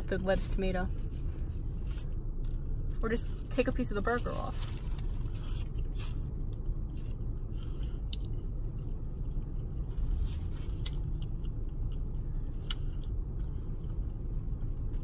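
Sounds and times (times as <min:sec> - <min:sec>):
low rumble inside a car: 0:00.0 - 0:15.0
woman chewing food: 0:07.5 - 0:15.0.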